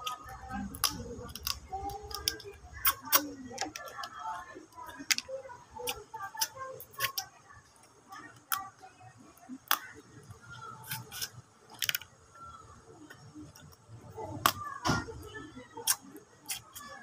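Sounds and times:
crab shell cracking: 0.0s - 4.2s, 4.8s - 7.3s, 9.6s - 10.0s, 10.7s - 12.2s.

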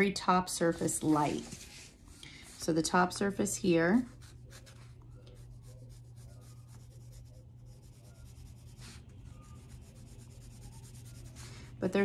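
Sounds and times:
pencil scratching on paper: 4.0s - 11.8s.

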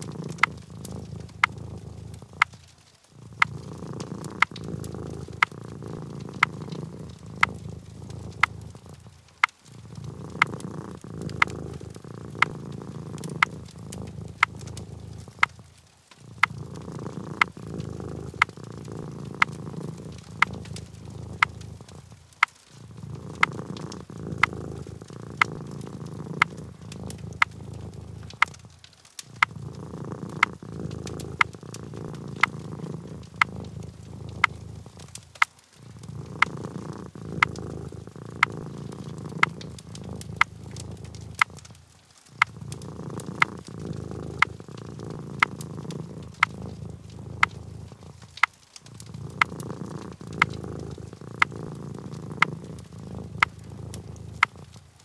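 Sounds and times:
sharp clicks: 0.0s - 9.7s, 10.3s - 29.6s, 38.4s - 41.8s
cat purring: 0.0s - 55.0s.

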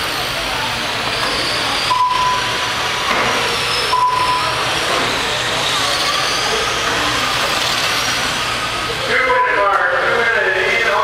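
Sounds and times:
radio-controlled cars whirring: 0.0s - 11.0s
short electronic beep: 1.9s - 2.7s, 3.9s - 4.6s.

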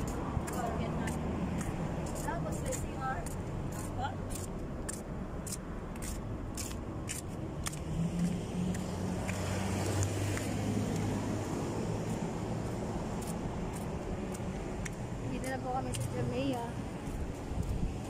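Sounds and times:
footsteps on pavement: 0.0s - 18.0s
traffic noise: 0.0s - 18.0s
passing car engine hum: 7.5s - 15.4s.

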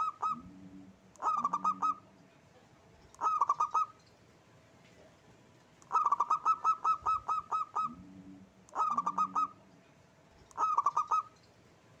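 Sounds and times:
dove cooing: 0.0s - 2.1s, 3.2s - 4.0s, 5.9s - 9.7s, 10.5s - 11.4s.

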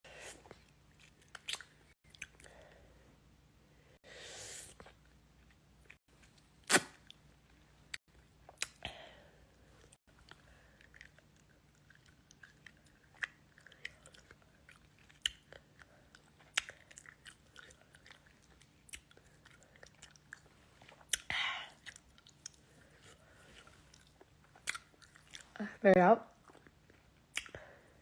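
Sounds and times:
wet chewing clicks and smacks: 0.6s - 2.5s, 9.8s - 22.6s, 23.9s - 25.5s, 26.3s - 27.7s.

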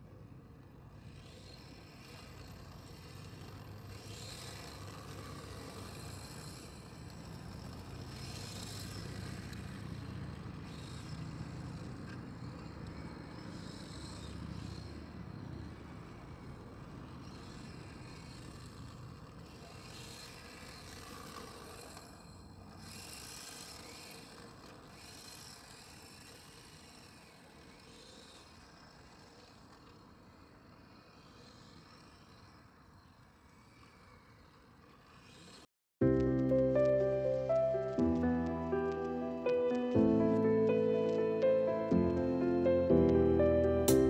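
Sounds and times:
rc car motor whine: 0.0s - 35.7s.

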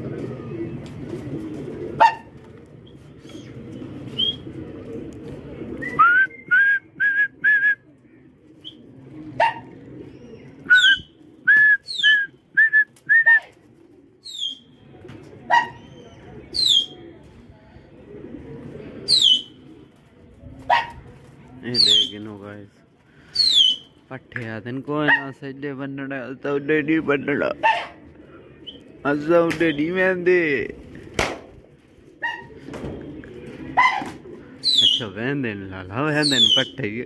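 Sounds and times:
pigeons cooing: 0.0s - 24.1s, 24.7s - 37.0s
birds whistling: 2.8s - 4.5s, 5.7s - 7.8s, 8.6s - 13.4s, 14.2s - 14.8s, 15.5s - 17.0s, 19.0s - 19.7s, 21.8s - 22.2s, 23.3s - 24.0s, 28.5s - 30.0s, 32.2s - 35.2s, 36.2s - 36.9s
high falling bird calls: 9.4s - 12.6s, 14.2s - 14.8s, 19.0s - 19.6s, 23.3s - 24.0s, 33.6s - 35.2s, 36.1s - 36.8s.

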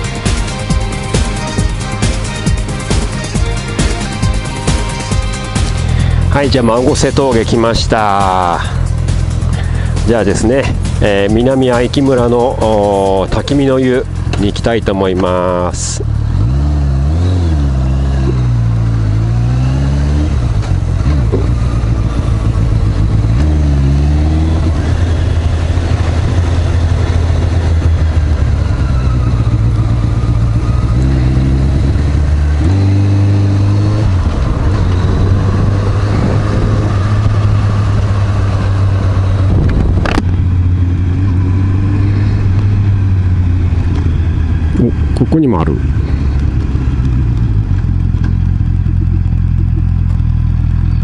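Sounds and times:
motorcycle engine accelerating: 0.0s - 51.0s
wind noise: 33.1s - 40.7s.

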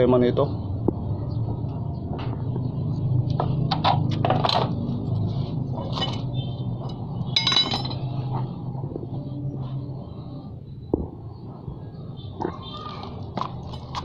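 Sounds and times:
light metallic clinks: 6.9s - 8.1s
ringing metal chink: 7.4s - 8.1s.

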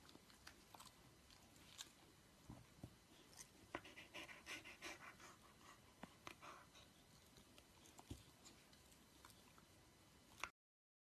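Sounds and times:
dog panting: 3.1s - 9.3s.

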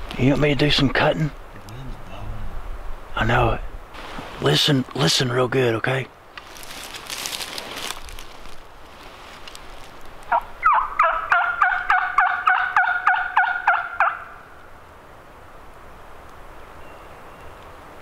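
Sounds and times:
turkey call sharp notes: 10.3s - 14.4s.

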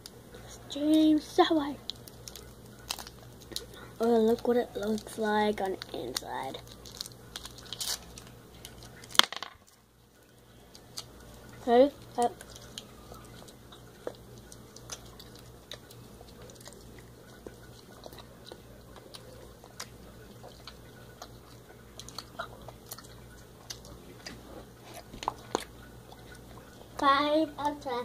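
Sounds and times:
faint low hum: 0.0s - 28.0s
chewing and sucking candy: 1.8s - 9.2s, 10.2s - 27.0s.

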